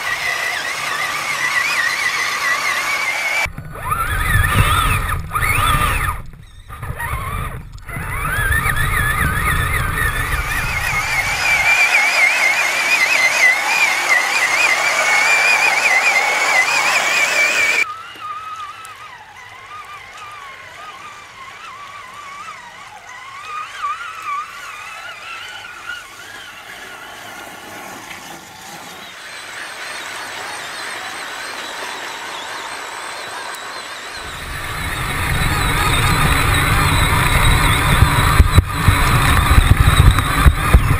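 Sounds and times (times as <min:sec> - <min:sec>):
electric motor whining: 0:00.0 - 0:40.9.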